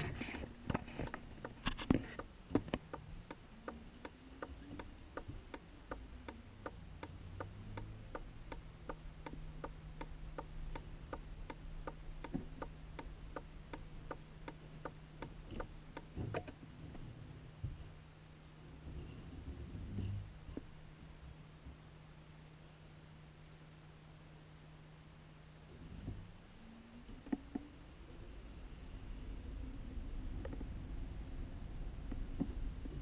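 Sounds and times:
engine idling hum: 0.0s - 33.0s
indicator flasher ticking: 0.6s - 16.5s.

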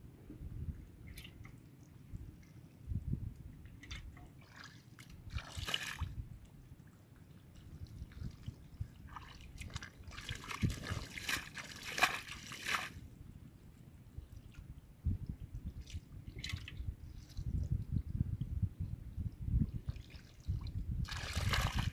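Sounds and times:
squelching mud and splashing water: 3.8s - 6.2s, 7.6s - 13.0s, 19.9s - 21.9s.

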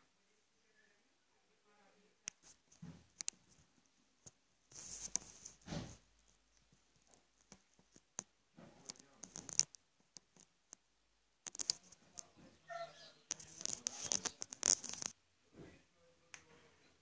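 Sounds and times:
rustles and scratches on cardboard: 2.3s - 10.6s, 11.5s - 12.4s, 13.2s - 15.2s.

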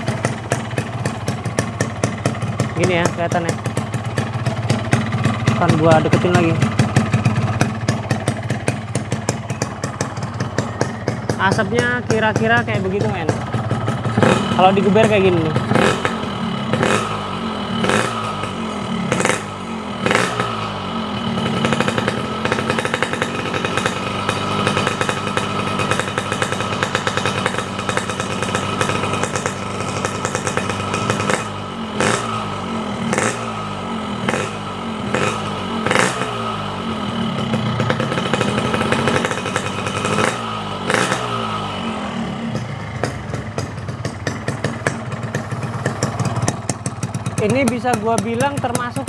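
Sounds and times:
engine cracks: 0.0s - 19.5s, 42.5s - 49.0s
motorcycle engine revving: 0.0s - 49.0s.

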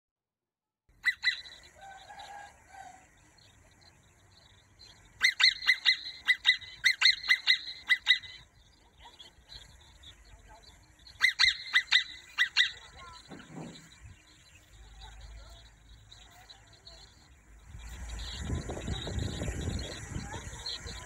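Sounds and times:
prairie dog screaming calls: 1.0s - 3.0s, 5.2s - 9.3s, 11.1s - 13.9s
prairie dog sharp barks: 11.2s - 13.7s.

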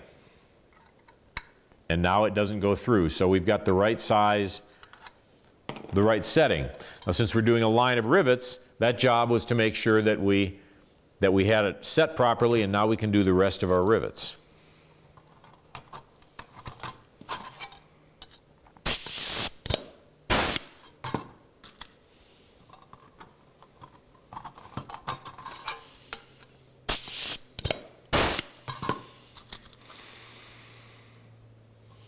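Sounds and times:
pneumatic tool air hiss: 18.8s - 19.7s, 20.3s - 20.8s, 26.9s - 28.6s.

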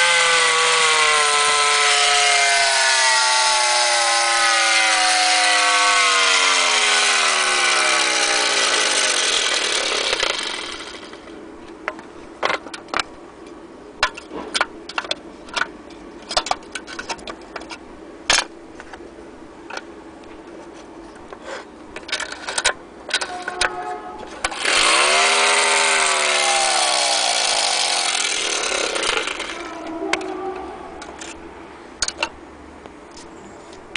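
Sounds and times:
clockwork motor whirring: 0.0s - 11.3s, 24.4s - 29.9s.

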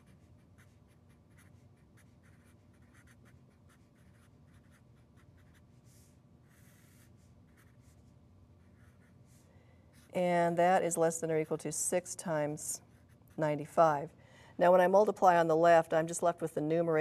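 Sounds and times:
felt-tip marker writing: 0.0s - 9.4s.

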